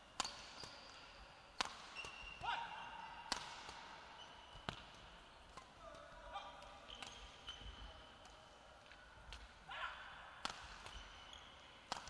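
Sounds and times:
racket striking shuttlecock: 0.2s - 0.8s, 1.6s - 2.5s, 3.3s - 3.9s, 10.4s - 11.0s
shoes squeaking on court floor: 1.9s - 3.3s, 4.1s - 4.9s, 6.4s - 8.2s, 10.8s - 11.7s.

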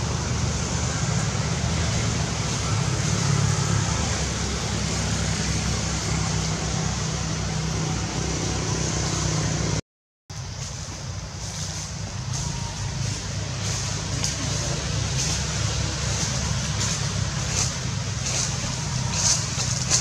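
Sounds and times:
outdoor background rumble: 0.0s - 20.0s.

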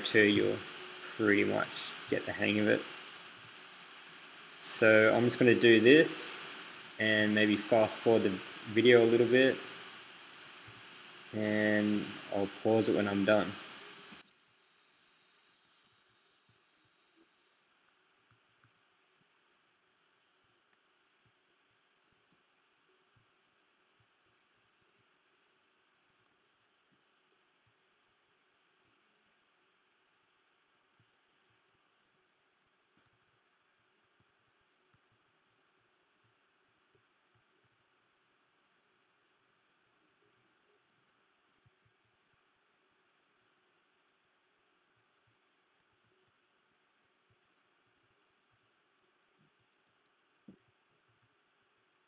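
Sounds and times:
faint hiss: 0.0s - 14.2s
computer mouse clicks: 3.1s - 3.5s, 10.3s - 10.8s, 14.9s - 16.6s, 17.9s - 23.3s, 24.8s - 29.1s, 30.6s - 52.0s.

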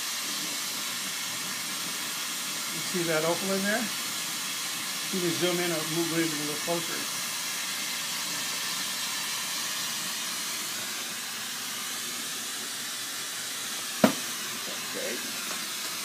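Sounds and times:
torch flame hissing: 0.0s - 16.0s
sharp knock: 14.0s - 14.2s.

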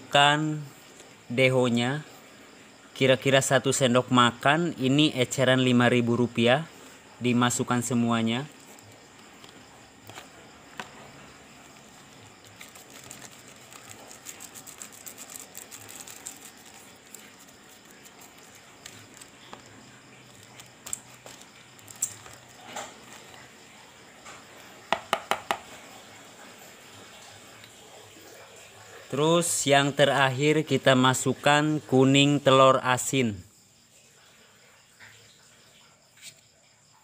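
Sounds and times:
plastic packet crinkling: 8.5s - 23.6s
sharp taps: 24.9s - 25.6s.

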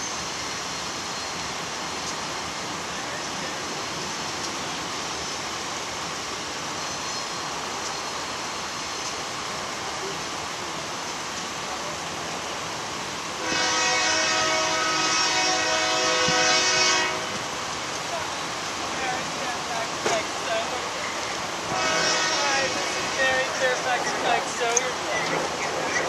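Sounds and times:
locomotive air horn chord: 13.4s - 17.4s, 21.7s - 23.5s.

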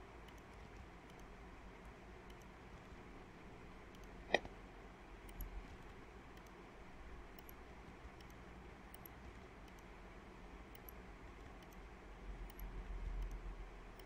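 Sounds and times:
steady low hiss: 0.0s - 14.0s
mouse and keyboard clicks: 3.9s - 4.5s, 7.3s - 9.9s, 10.7s - 11.8s, 12.5s - 13.4s.

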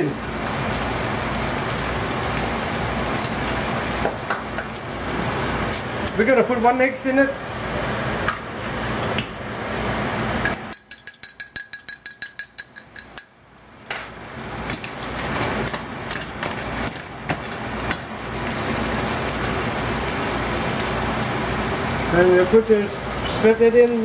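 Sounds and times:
food sizzling in frying pan: 0.0s - 11.4s, 12.9s - 24.0s
egg beaten in glass cup: 10.7s - 13.2s.

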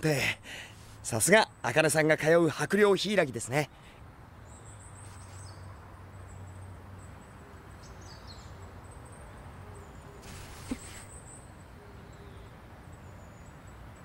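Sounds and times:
steady low background noise: 0.0s - 14.0s
high thin bird chirps: 10.2s - 11.5s.

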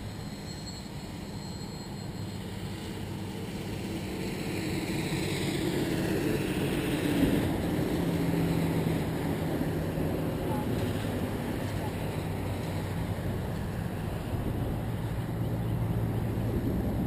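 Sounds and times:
road traffic passing: 0.0s - 17.0s
truck passing: 0.0s - 17.0s.

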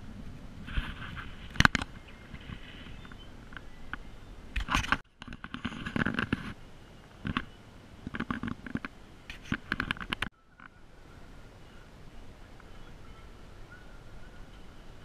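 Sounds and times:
handling noise of carried camera: 0.6s - 6.6s, 7.2s - 10.7s.

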